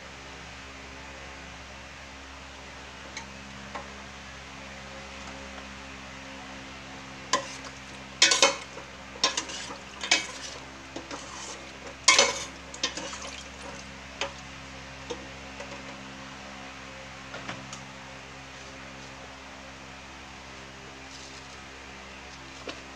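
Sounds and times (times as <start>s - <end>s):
steady low hum: 0.0s - 22.9s
spoon scraping a metal pot: 7.4s - 13.4s.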